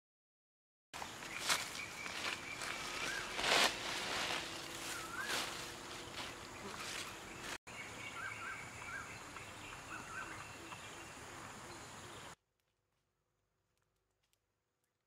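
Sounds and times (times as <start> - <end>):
leafy branches rustling: 1.0 - 7.6
high insect drone: 1.0 - 12.4
small birds chirping: 1.0 - 12.4.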